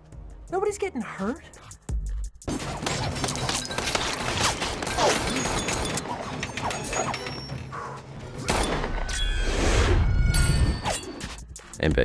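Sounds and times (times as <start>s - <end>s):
film music: 0.0s - 12.0s
metallic impacts and clangs: 2.5s - 9.5s.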